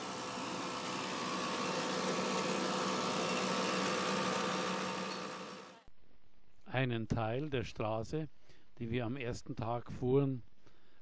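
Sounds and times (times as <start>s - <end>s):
fuel pump motor hum: 0.0s - 5.8s.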